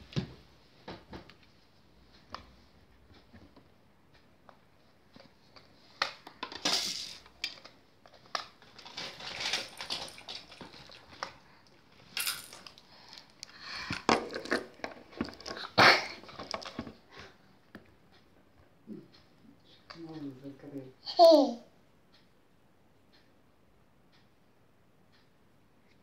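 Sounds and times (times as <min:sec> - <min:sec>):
plastic being handled: 0:08.1 - 0:11.4.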